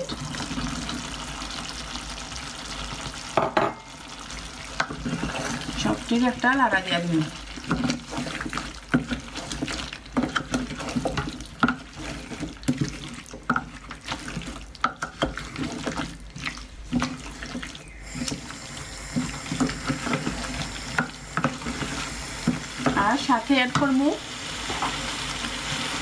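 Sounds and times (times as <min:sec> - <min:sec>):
spoon scraping pot: 0:04.7 - 0:06.0, 0:07.6 - 0:24.0
liquid sloshing: 0:07.6 - 0:18.5.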